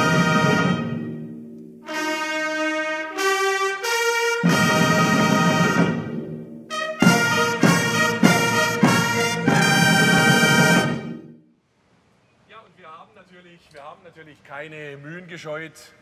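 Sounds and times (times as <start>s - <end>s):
brass fanfare music: 0.0s - 11.4s.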